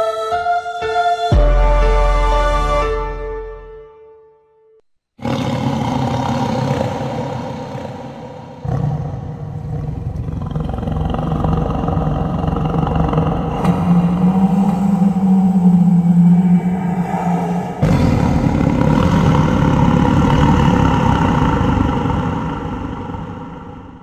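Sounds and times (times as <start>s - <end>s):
deep rumbling roar: 5.2s - 24.0s.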